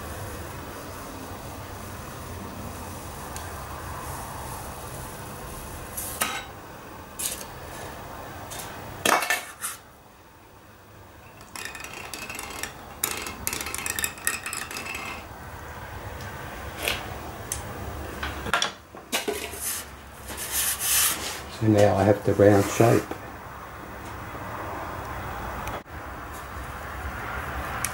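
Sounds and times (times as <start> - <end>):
hand tools clicking and clattering: 11.3 - 15.3.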